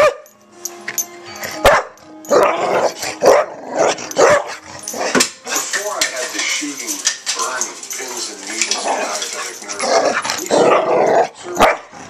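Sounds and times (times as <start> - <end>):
small dog barking: 11.6 - 11.9.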